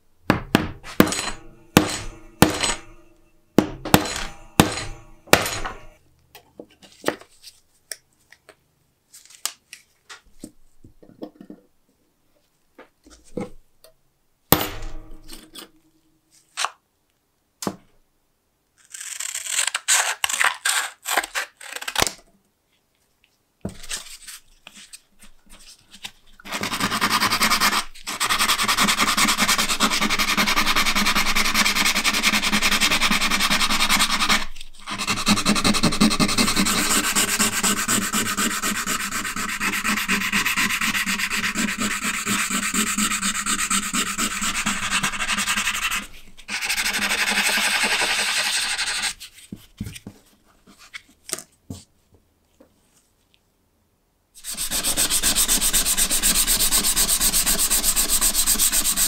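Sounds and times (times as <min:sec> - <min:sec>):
sanding metal by hand: 0:26.5 - 0:49.2, 0:54.4 - 0:59.0.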